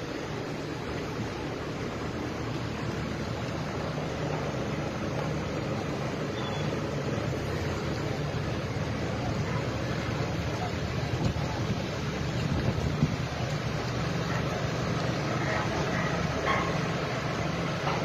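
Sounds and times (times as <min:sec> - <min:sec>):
low engine rumble: 0:00.0 - 0:18.0
wind noise on microphone: 0:11.0 - 0:13.5.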